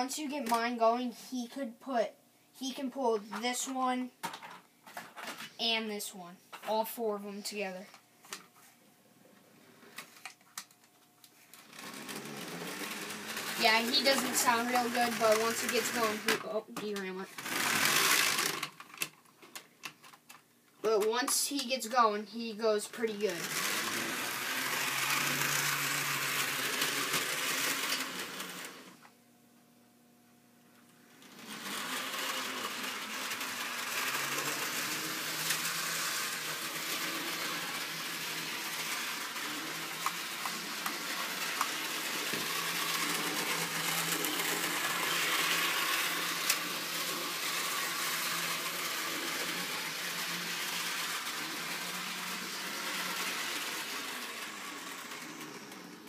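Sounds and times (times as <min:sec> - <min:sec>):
model train electric whir: 0:11.5 - 0:16.4, 0:17.0 - 0:19.1, 0:23.0 - 0:29.0, 0:31.2 - 0:56.0.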